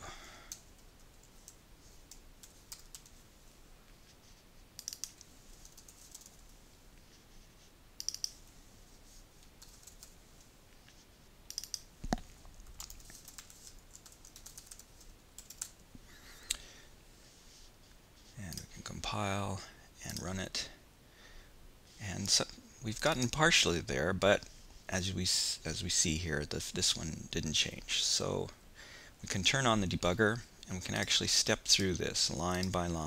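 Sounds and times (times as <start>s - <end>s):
typing on computer keyboard: 12.7s - 15.7s.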